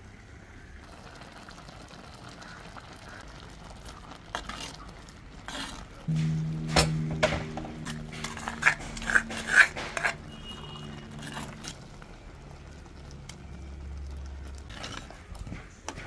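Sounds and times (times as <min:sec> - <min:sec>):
ladle scraping a clay pot: 0:05.5 - 0:12.1, 0:14.4 - 0:16.0
low hum: 0:06.1 - 0:14.8.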